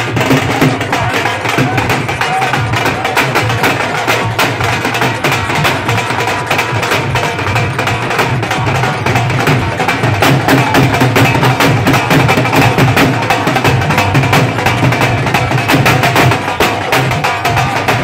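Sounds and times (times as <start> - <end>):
dhol drums playing fast: 0.0 - 18.0
music: 0.0 - 18.0.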